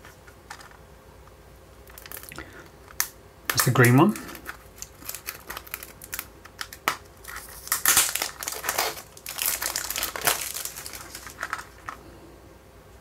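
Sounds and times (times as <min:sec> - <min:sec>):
cellophane wrapper crinkling: 0:01.8 - 0:12.0.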